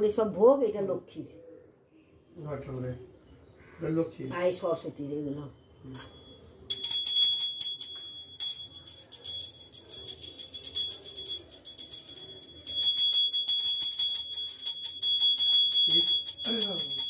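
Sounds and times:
brass hand bell ringing rapidly: 6.7s - 17.0s.

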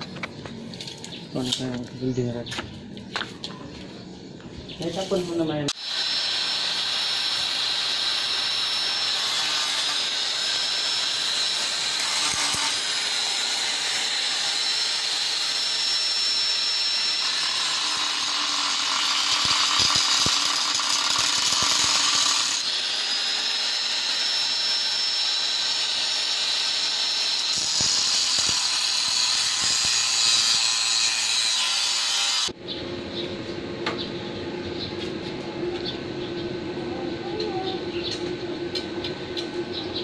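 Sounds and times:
angle grinder cutting steel: 5.1s - 32.6s.

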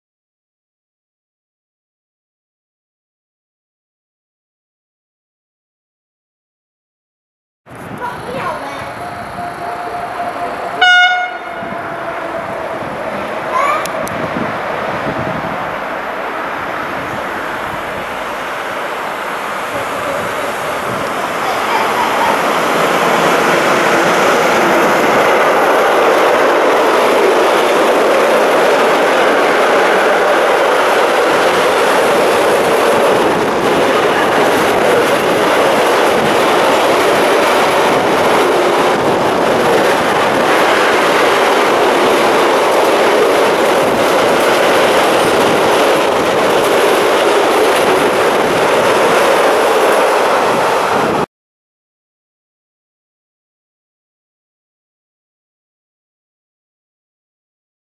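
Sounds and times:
freight train wheels rumbling on rails: 7.7s - 51.3s.

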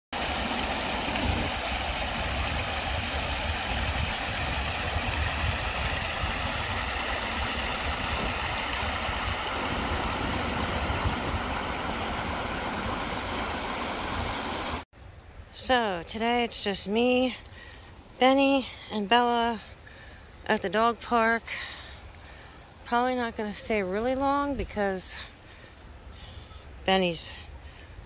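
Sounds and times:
creek water rushing over rocks: 0.1s - 14.8s.

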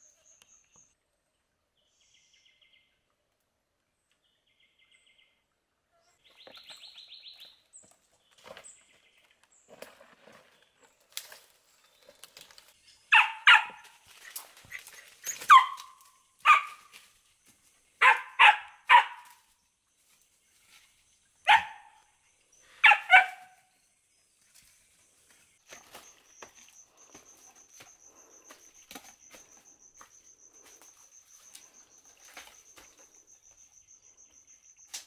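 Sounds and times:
animal barking: 13.1s - 14.0s, 14.8s - 16.9s, 18.0s - 19.4s, 21.5s - 22.0s, 22.8s - 23.6s.

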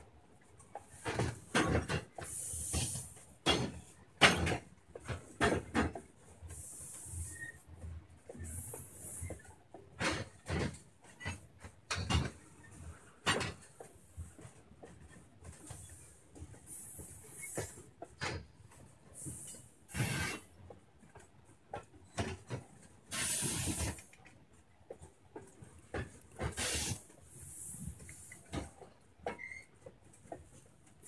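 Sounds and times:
train wheels clunking over rail joints: 0.0s - 31.0s
high hiss: 26.5s - 28.3s.

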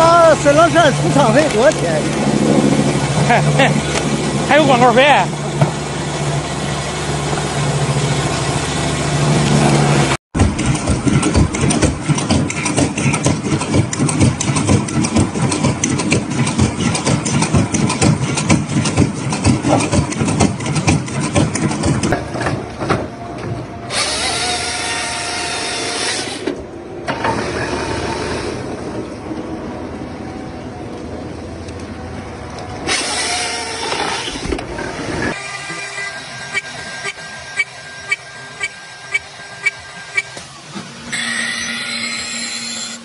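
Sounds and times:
harvester engine running: 0.0s - 43.0s
chain saw cutting log: 10.4s - 22.1s, 23.9s - 28.7s, 32.8s - 43.0s
mechanical clattering: 10.4s - 22.8s.

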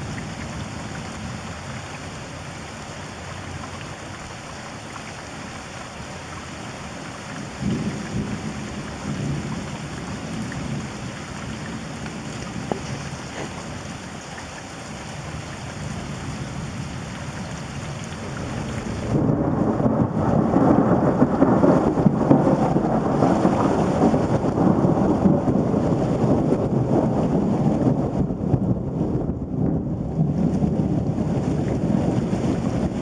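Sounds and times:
steady rain: 0.0s - 33.0s
rolling thunder: 7.6s - 13.9s, 18.1s - 33.0s.

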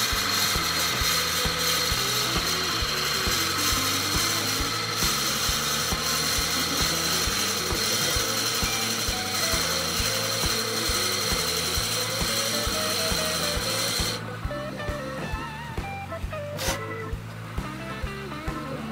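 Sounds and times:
lathe drill boring into wood: 0.0s - 14.2s
background music with beat: 0.0s - 18.9s.

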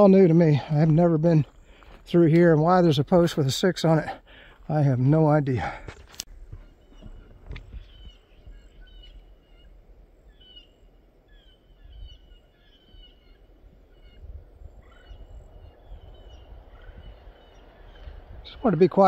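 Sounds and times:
walking and handling rumble: 0.0s - 8.8s
birds chirping: 0.0s - 19.0s.

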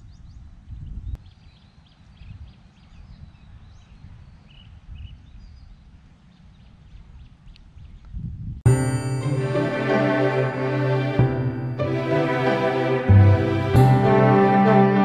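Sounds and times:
birds chirping: 0.0s - 8.2s
wind buffeting microphone: 0.0s - 8.7s.

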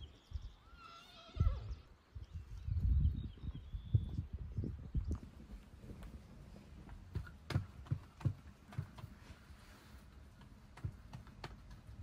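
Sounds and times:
irregular knocks and clicks: 6.8s - 9.3s, 10.1s - 12.0s.

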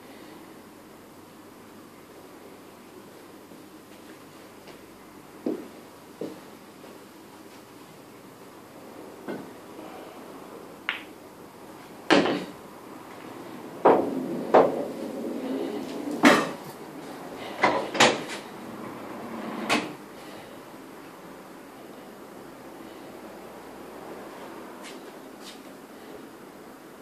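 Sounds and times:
pool balls clacking: 10.8s - 11.2s, 12.0s - 12.6s, 13.8s - 16.9s.

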